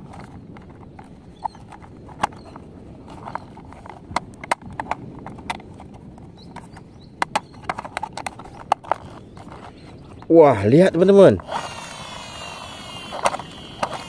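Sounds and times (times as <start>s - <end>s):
plastic toy parts clicking together: 11.4s - 14.0s.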